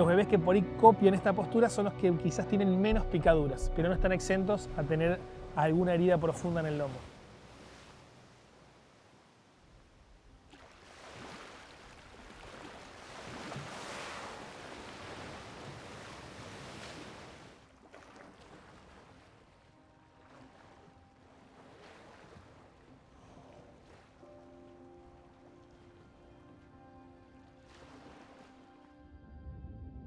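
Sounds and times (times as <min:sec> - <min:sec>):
water lapping: 0:03.0 - 0:29.0
sea water sloshing and splashing: 0:04.4 - 0:26.6, 0:27.3 - 0:28.8.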